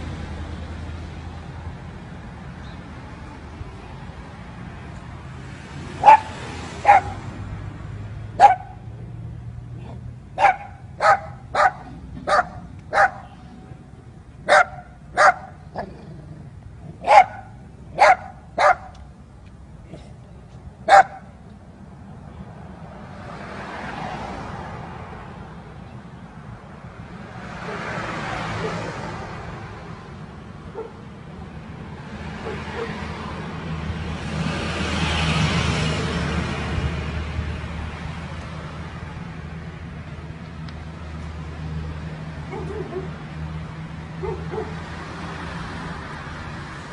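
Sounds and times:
dog barking: 6.0 - 7.3, 8.4 - 8.8, 10.4 - 13.4, 14.4 - 15.9, 17.0 - 19.0, 20.9 - 21.3, 28.6 - 28.9, 30.7 - 31.0, 32.4 - 33.0, 42.5 - 43.2, 44.2 - 44.8.

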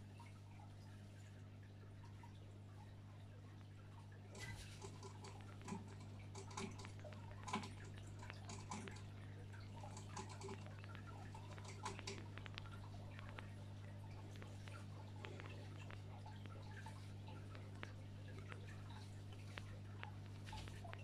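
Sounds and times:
aquarium equipment humming: 0.0 - 21.0
small water drips: 0.0 - 21.0
clicks: 4.3 - 21.0.

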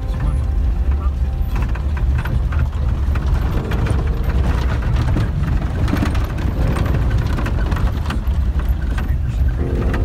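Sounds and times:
light rattles and clicks: 0.0 - 10.0
vehicle engine rumble: 0.0 - 10.0.

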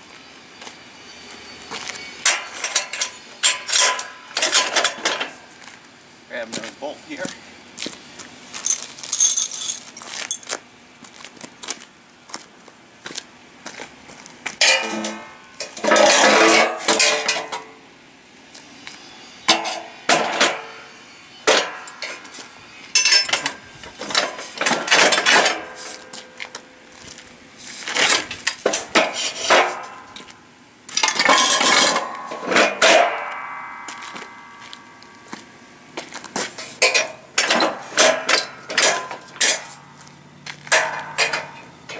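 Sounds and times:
metal frames clanking: 1.7 - 5.5, 14.6 - 17.8, 19.5 - 26.3, 28.0 - 30.3, 31.0 - 35.4, 36.3 - 39.9, 40.5 - 41.9
bolts clinking: 1.8 - 5.4, 8.6 - 10.6, 14.6 - 17.8, 21.4 - 26.6, 28.0 - 35.2, 36.0 - 39.8, 40.5 - 41.9.

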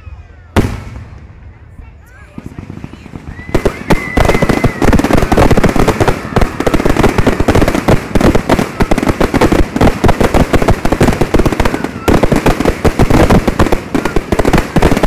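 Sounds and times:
fireworks bangs and crackle: 0.0 - 15.0.

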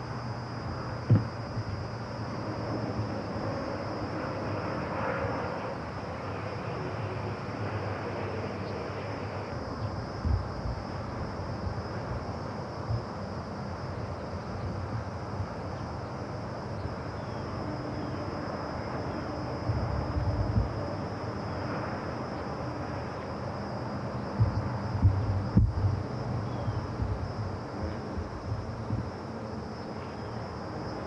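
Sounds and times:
low rumble: 19.6 - 21.0, 24.4 - 29.2.

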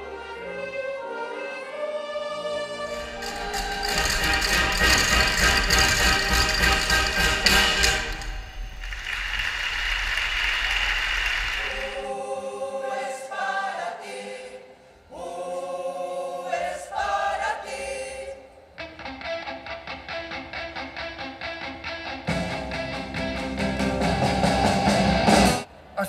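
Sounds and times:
mixed choir singing: 0.0 - 6.5, 11.5 - 18.7
applause: 8.8 - 12.1.

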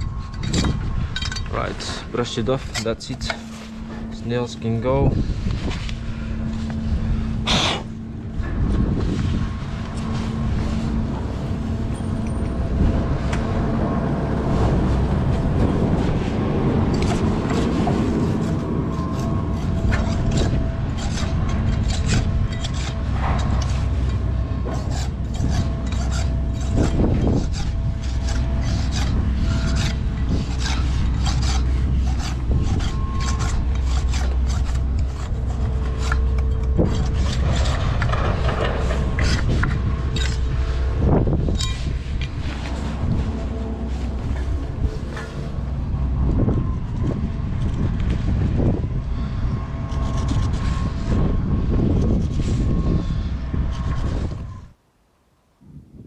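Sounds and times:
brush scrubbing brick: 17.0 - 45.7.

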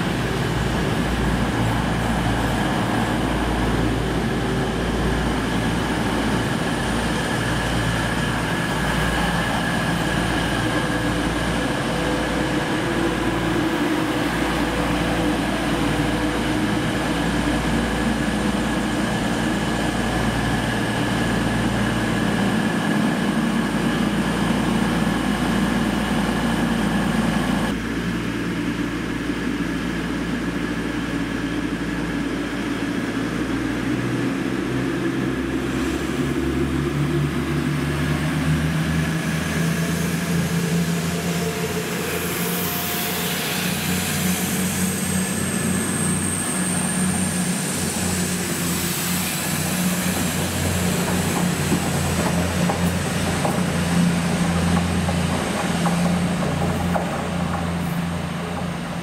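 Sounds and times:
train diesel engines running: 0.0 - 59.0.

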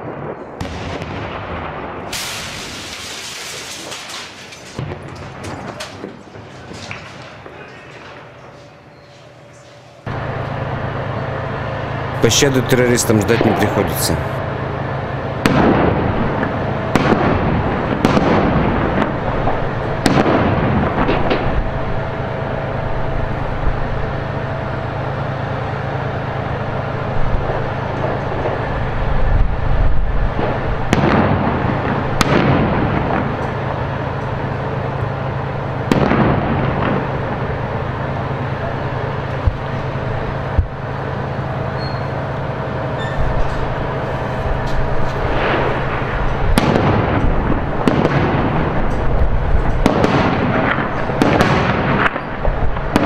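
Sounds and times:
gunfire and explosions: 0.0 - 8.4, 15.3 - 22.1, 30.2 - 41.4, 44.8 - 53.0
low vehicle engine drone: 0.0 - 53.0.

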